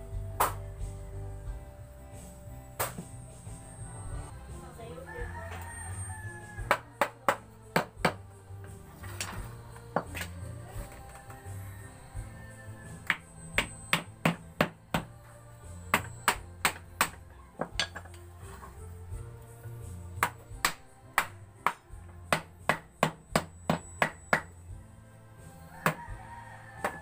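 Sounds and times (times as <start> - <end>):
hammer knocking on wood: 21.7 - 24.5.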